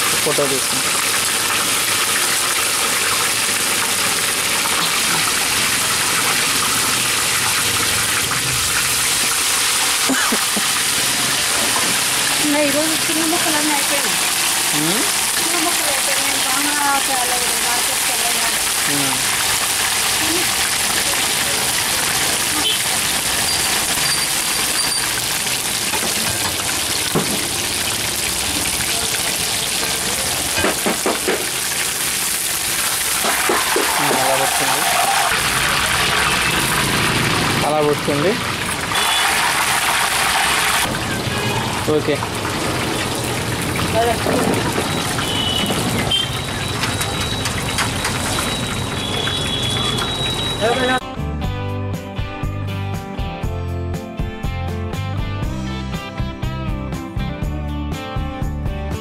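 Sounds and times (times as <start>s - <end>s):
oil sizzling as fish fries: 0.0s - 51.0s.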